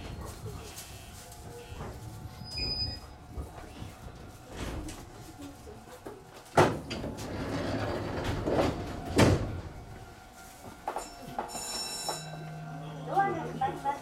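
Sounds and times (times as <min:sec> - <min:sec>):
train doors thudding: 0:06.4 - 0:10.1.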